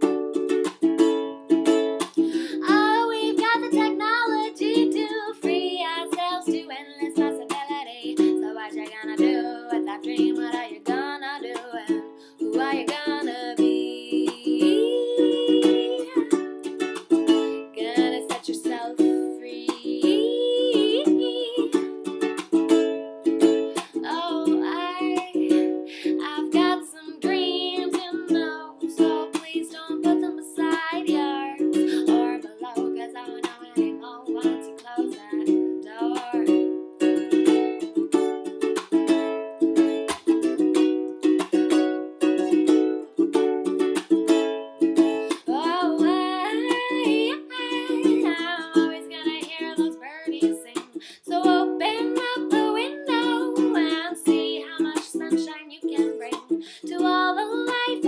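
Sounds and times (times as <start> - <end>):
ukulele strumming: 0.0 - 58.0
woman singing: 2.0 - 16.5, 17.4 - 21.9, 23.6 - 36.8, 45.2 - 58.0.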